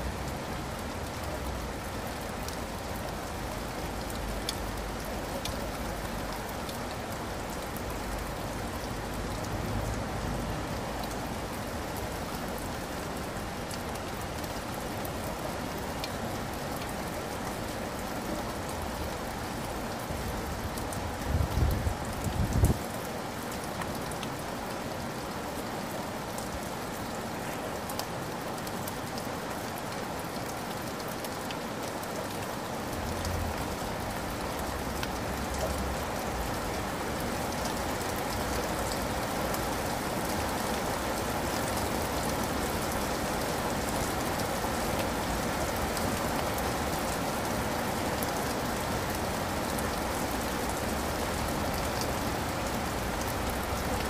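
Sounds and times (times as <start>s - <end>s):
steady rain falling: 0.0s - 54.0s.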